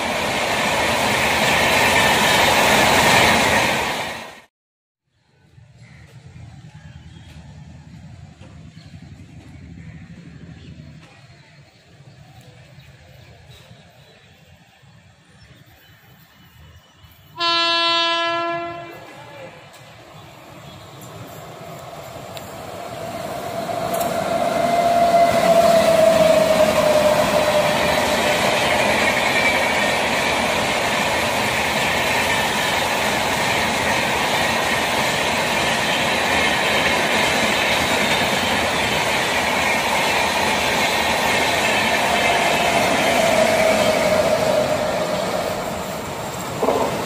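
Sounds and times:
electric locomotive hum: 5.5 - 47.0
train wheels clattering over rail joints: 46.4 - 47.0.

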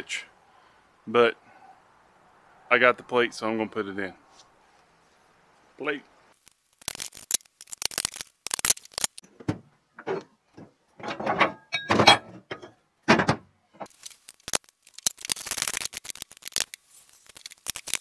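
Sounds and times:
fast clicks: 6.4 - 9.2, 13.9 - 18.0
metal knocks and clinks: 11.0 - 13.3.

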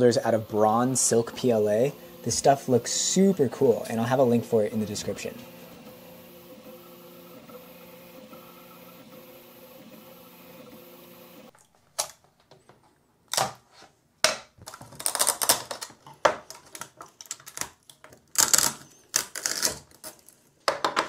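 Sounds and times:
plastic snapping and scraping: 13.3 - 21.0.

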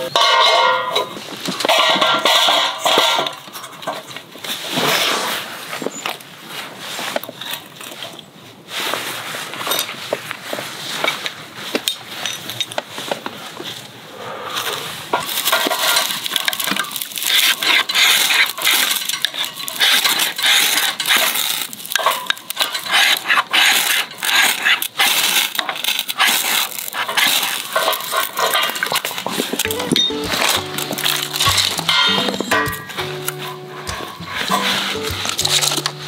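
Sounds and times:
metallic rasping scrapes: 16.9 - 29.7.

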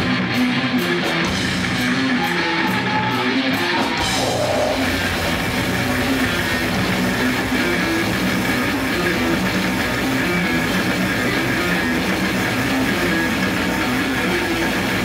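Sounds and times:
heavy metal band playing: 0.0 - 15.0.

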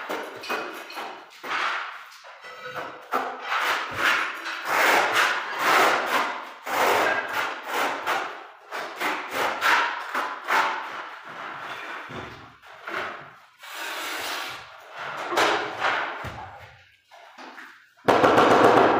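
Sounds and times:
trowel scraping adhesive on concrete: 2.8 - 11.9, 13.6 - 15.0.

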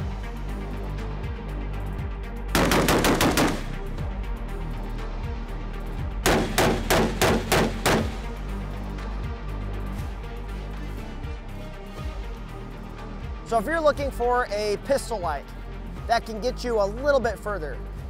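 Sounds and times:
background music: 0.0 - 18.0
rifle gunfire: 2.6 - 3.8, 6.2 - 8.3.

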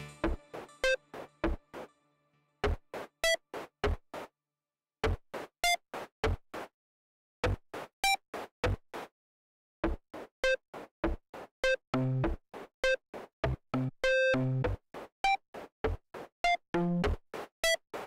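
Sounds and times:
synthesized percussive hits and beeps: 0.0 - 1.6.

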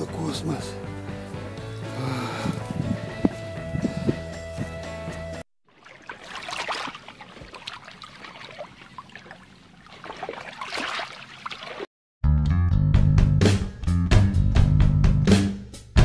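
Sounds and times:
water gurgling and splashing: 5.7 - 11.9.

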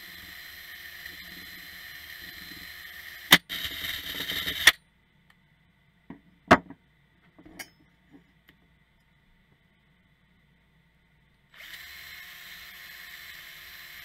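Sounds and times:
cordless drill running: 0.0 - 4.7, 11.5 - 14.0.

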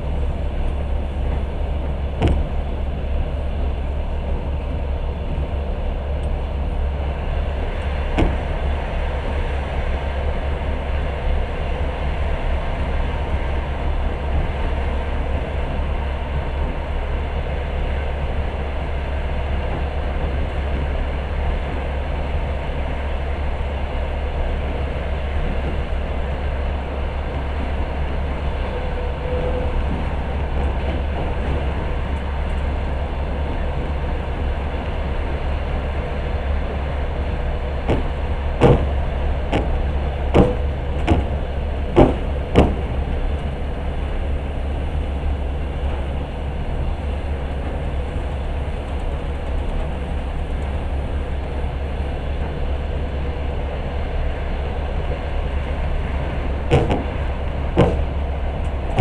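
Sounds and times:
train rumbling: 0.0 - 59.0
train wheels knocking on track: 0.4 - 10.8, 11.6 - 48.7, 49.9 - 59.0.

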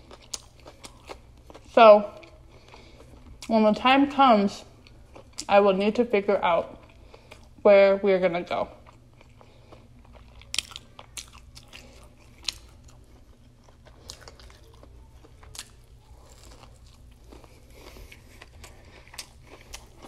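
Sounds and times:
crunchy chewing: 0.0 - 3.5, 8.8 - 20.0
faint low hum: 0.0 - 20.0.

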